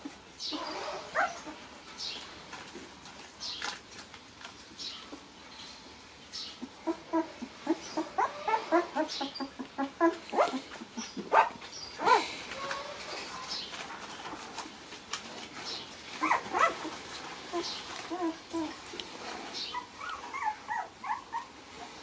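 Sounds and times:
puppies whining and yipping: 0:00.0 - 0:01.6, 0:06.5 - 0:13.8, 0:16.1 - 0:18.9, 0:19.6 - 0:22.0.

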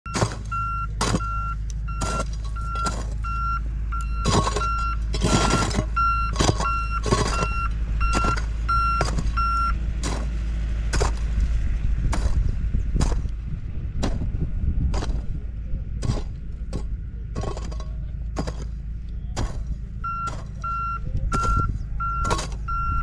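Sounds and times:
tractor engine rumble: 0:00.0 - 0:23.0
hoe chopping and scraping soil: 0:00.1 - 0:03.4, 0:04.0 - 0:23.0
reversing alarm beeping: 0:00.1 - 0:09.8, 0:20.0 - 0:23.0.

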